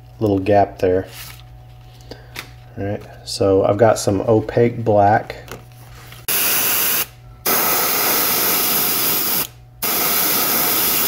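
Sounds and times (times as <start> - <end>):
airbrush hissing: 6.3 - 11.0.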